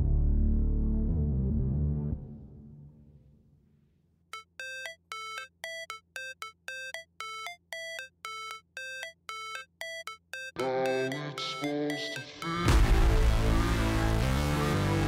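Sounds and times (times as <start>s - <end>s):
electronic beeping ringtone: 4.4s - 12.8s
background music: 10.6s - 15.0s.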